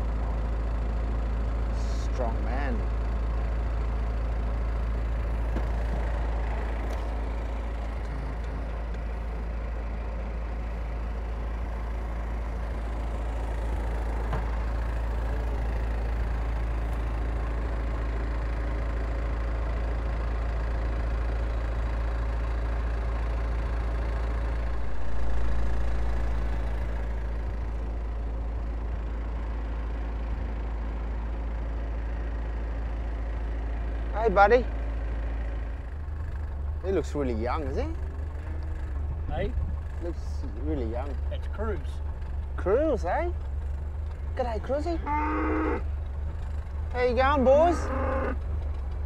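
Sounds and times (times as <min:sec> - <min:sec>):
vehicle engine idling: 0:00.0 - 0:49.0.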